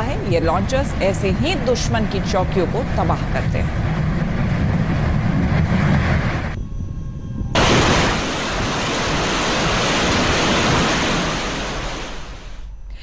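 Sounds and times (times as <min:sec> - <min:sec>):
rocket launchers firing roar: 0:07.5 - 0:12.4.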